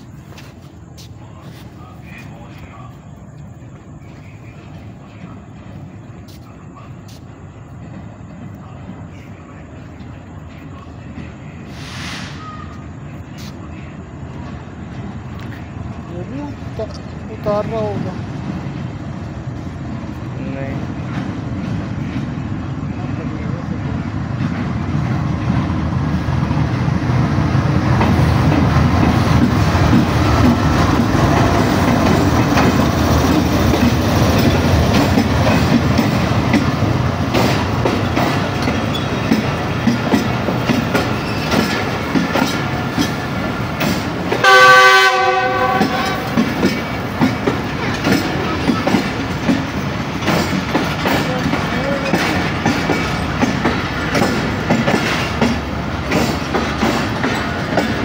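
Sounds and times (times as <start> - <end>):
diesel locomotive passing: 0.0 - 58.0
train wheels clickety-clack: 14.3 - 58.0
train horn: 44.4 - 46.5.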